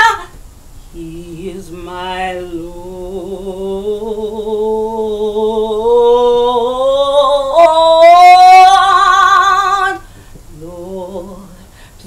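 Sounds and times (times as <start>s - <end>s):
woman singing into a microphone: 0.0s - 12.0s.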